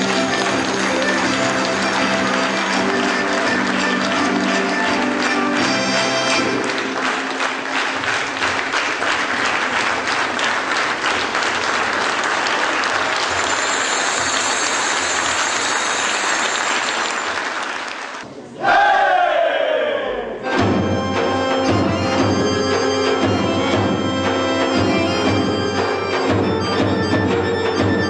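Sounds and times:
audience applauding: 0:00.0 - 0:18.2
folk dance music: 0:00.0 - 0:18.2, 0:20.4 - 0:28.0.

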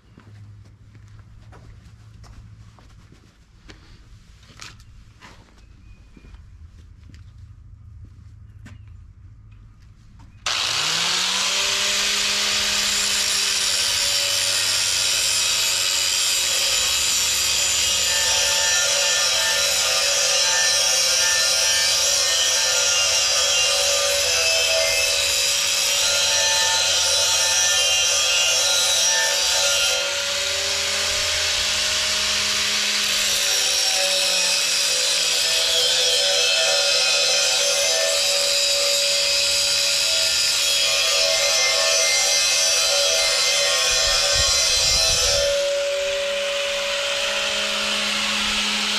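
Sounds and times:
angle grinder grinding steel: 0:10.5 - 0:48.9.

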